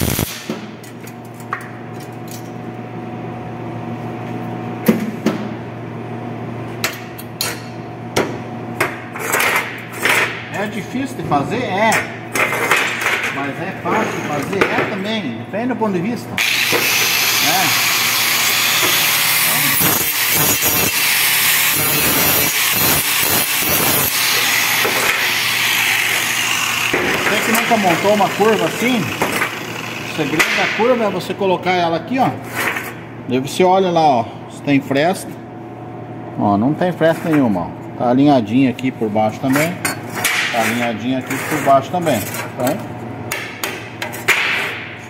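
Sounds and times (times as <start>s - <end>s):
steady electrical hum: 0.0s - 45.0s
angle grinder grinding metal: 16.4s - 31.0s.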